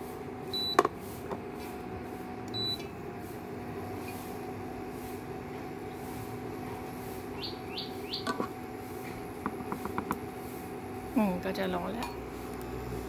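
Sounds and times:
induction cooktop humming: 0:00.0 - 0:13.0
bird chirping: 0:07.4 - 0:08.3.

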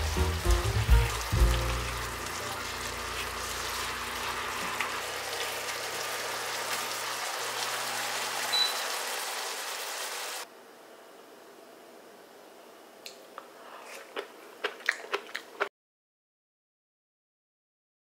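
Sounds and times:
vegetables sizzling in a frying pan: 0:00.0 - 0:10.5.

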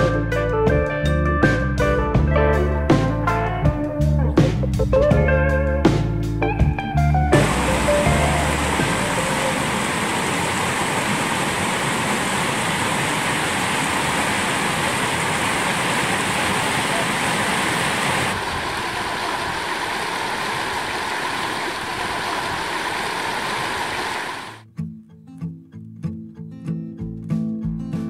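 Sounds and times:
stream rushing over boulders: 0:07.4 - 0:24.6.

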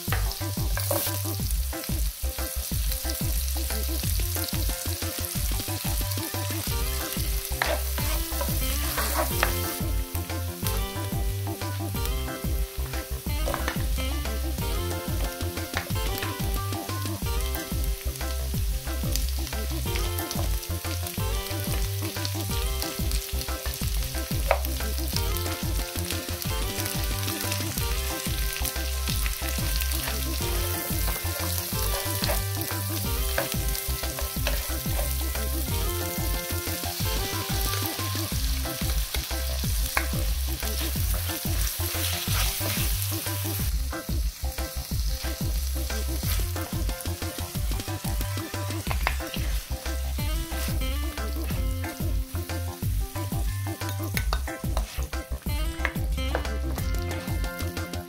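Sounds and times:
vegetables sizzling in oil: 0:00.0 - 0:58.0
spatula scraping pan: 0:06.6 - 0:10.0, 0:26.4 - 0:38.8, 0:40.6 - 0:43.6.

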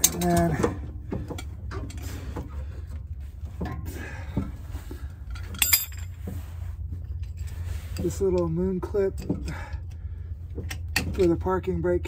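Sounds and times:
metal tools clicking and knocking: 0:00.0 - 0:02.0, 0:05.3 - 0:06.2.

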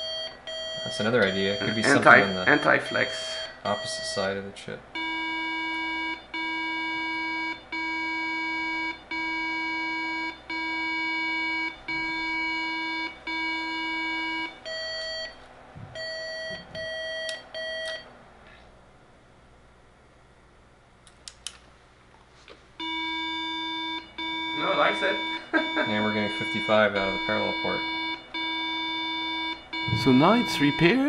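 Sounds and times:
long low beeps: 0:00.0 - 0:04.3, 0:22.8 - 0:31.0
short high beeps: 0:29.8 - 0:31.0.

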